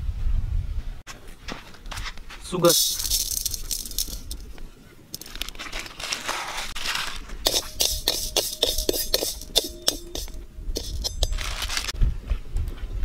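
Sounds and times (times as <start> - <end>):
spatula scraping sugar in pan: 7.5 - 11.8.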